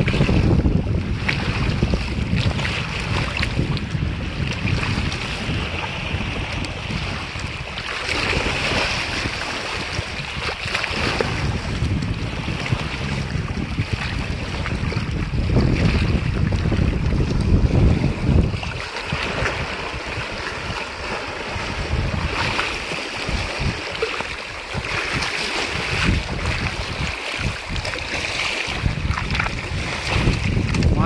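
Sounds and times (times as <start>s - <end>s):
waves lapping against rocks: 0.0s - 31.0s
wind buffeting microphone: 0.0s - 31.0s
fish splashing in water: 18.4s - 30.6s.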